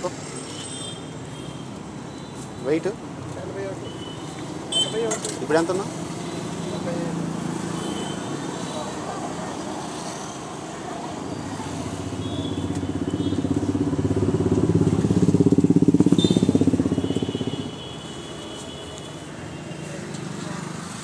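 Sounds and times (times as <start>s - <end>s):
road traffic noise: 0.0s - 21.0s
motorcycle engine running: 12.0s - 17.8s.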